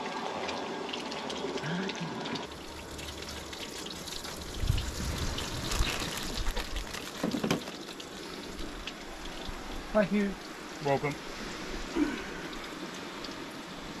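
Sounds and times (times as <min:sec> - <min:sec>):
fish frying in oil: 0:00.0 - 0:09.8.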